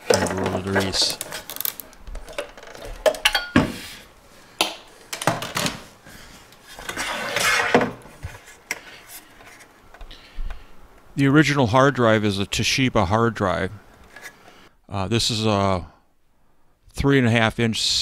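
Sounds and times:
metal scraping on wood: 0:06.8 - 0:08.4.

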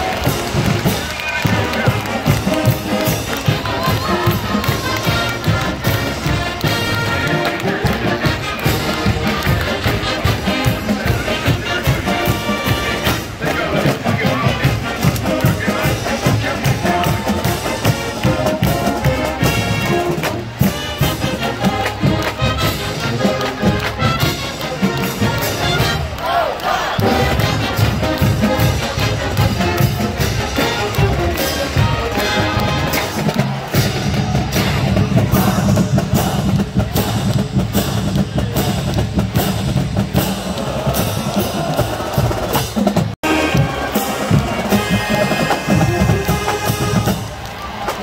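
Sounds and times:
marching band brass melody: 0:00.0 - 0:48.0
steady drum beat: 0:00.0 - 0:48.0
bass drum and snare beat: 0:27.0 - 0:48.0.

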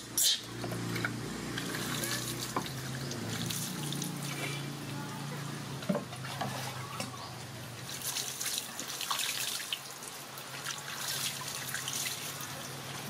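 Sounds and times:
water splashing: 0:01.6 - 0:04.5, 0:07.8 - 0:13.0.

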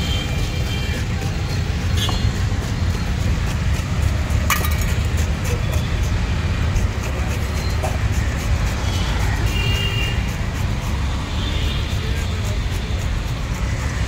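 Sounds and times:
road traffic rumble: 0:00.0 - 0:14.0
tin can clinking: 0:04.5 - 0:05.0.

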